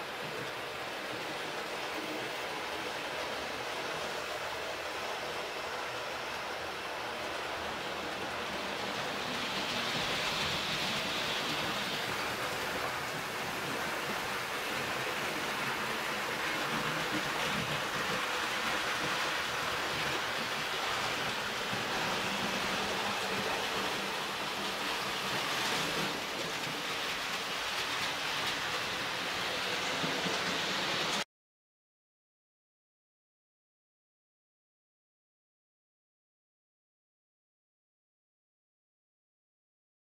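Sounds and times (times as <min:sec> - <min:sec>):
model train running on track: 0:00.0 - 0:31.2.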